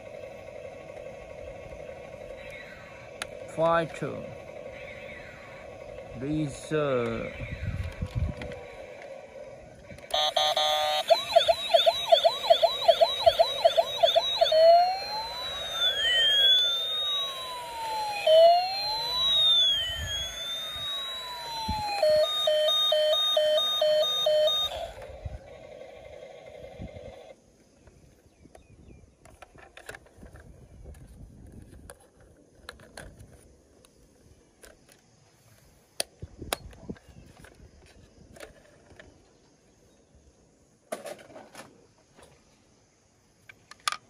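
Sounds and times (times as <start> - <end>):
toy electronic siren: 0.0 - 27.4.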